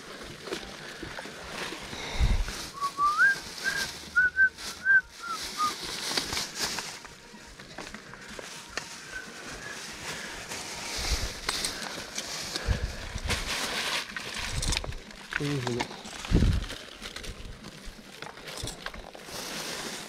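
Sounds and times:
rustling handling noise: 0:00.0 - 0:20.0
whistled notes: 0:02.7 - 0:05.8.

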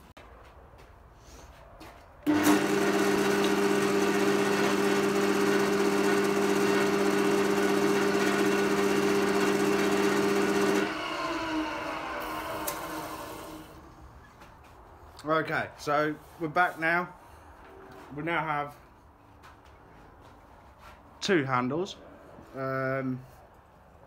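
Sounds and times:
wood lathe humming: 0:02.3 - 0:13.8.

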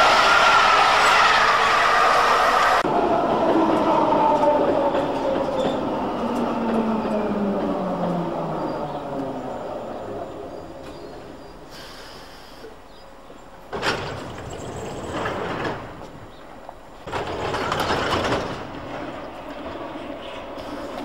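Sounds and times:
loud hissing bursts: 0:11.7 - 0:12.7.

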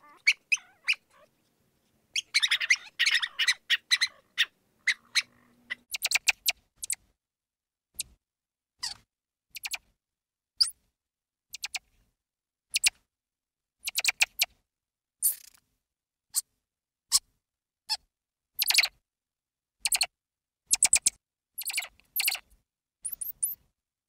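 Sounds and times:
mouse squeaking: 0:00.0 - 0:01.3, 0:02.1 - 0:07.0, 0:08.0 - 0:08.2, 0:08.8 - 0:09.9, 0:11.5 - 0:11.9, 0:12.7 - 0:13.0, 0:13.8 - 0:14.5, 0:15.2 - 0:15.6, 0:18.6 - 0:19.0, 0:19.8 - 0:20.1, 0:20.7 - 0:23.6.

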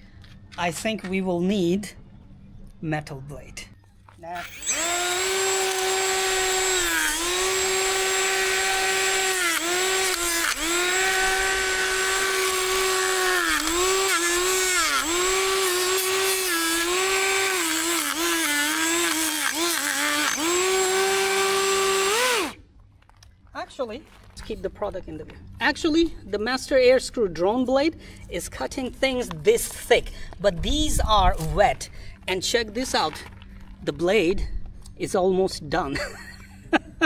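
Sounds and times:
blade cutting grass: 0:04.3 - 0:22.6
electric motor whine: 0:04.3 - 0:22.6.

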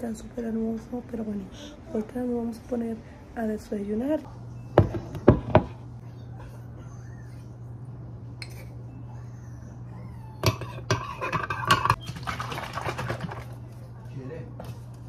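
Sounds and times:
low steady hum: 0:00.0 - 0:15.0
dishes and utensils clattering: 0:10.4 - 0:13.4.

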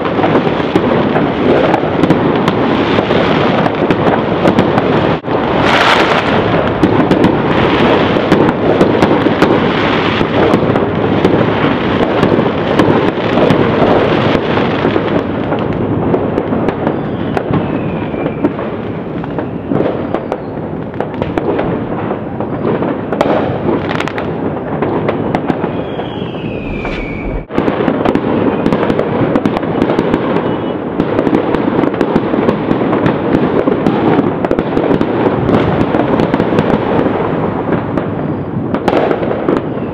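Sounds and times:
fireworks and firecrackers crackling: 0:00.0 - 0:39.9
falling firework whistles: 0:16.8 - 0:18.6, 0:19.3 - 0:20.6, 0:25.2 - 0:29.0, 0:30.2 - 0:30.9, 0:38.2 - 0:39.9.

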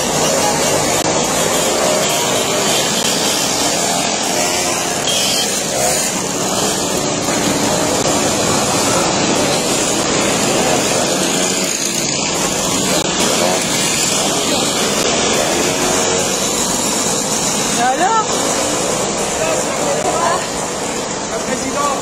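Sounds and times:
mopeds buzzing past: 0:00.0 - 0:21.3.

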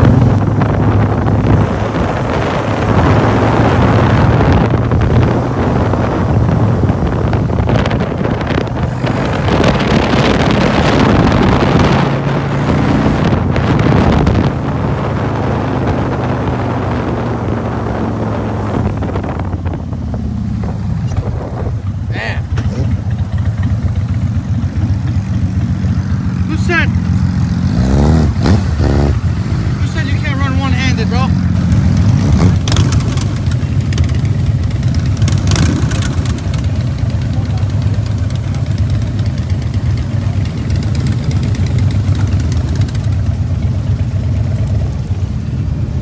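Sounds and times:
wind noise on microphone: 0:00.0 - 0:22.1
motorcycle engine running: 0:00.0 - 0:46.0.

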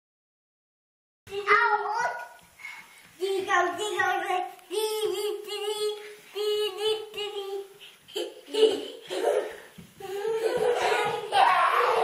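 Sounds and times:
child crying out: 0:10.0 - 0:12.0.

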